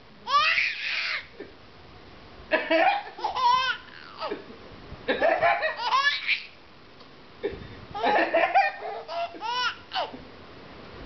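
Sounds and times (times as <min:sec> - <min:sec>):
baby laughing: 0:00.3 - 0:01.4, 0:02.7 - 0:04.5, 0:05.2 - 0:06.6, 0:08.0 - 0:10.2
man laughing: 0:07.4 - 0:09.5.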